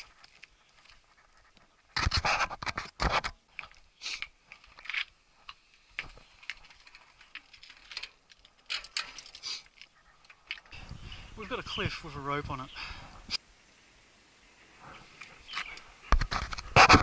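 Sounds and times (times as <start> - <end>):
person breathing hard: 12.7 - 13.4.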